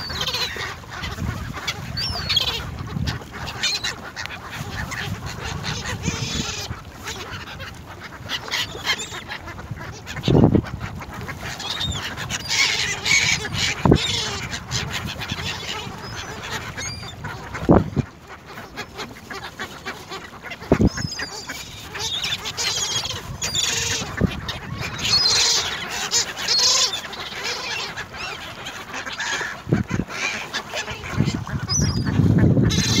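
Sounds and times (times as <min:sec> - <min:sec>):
ducks quacking: 0:00.0 - 0:33.0
gull cries: 0:20.7 - 0:29.6, 0:30.2 - 0:33.0.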